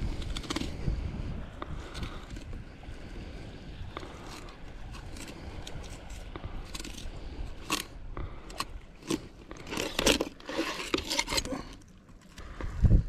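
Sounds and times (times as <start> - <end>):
knife crunching through fish bones: 0.0 - 0.8, 4.1 - 12.0.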